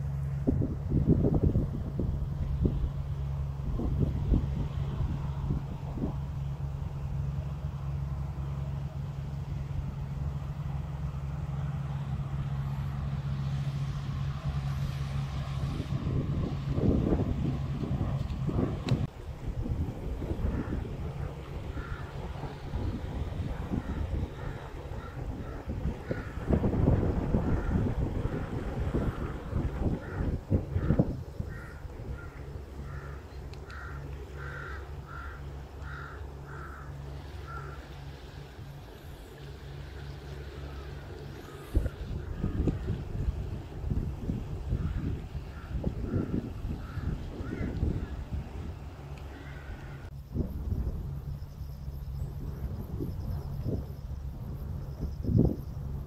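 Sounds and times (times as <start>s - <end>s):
low engine hum with rumble: 0.0s - 56.0s
crow cawing: 20.5s - 20.8s, 21.7s - 22.2s, 23.8s - 26.5s, 30.0s - 37.9s, 44.7s - 48.2s, 49.3s - 50.1s.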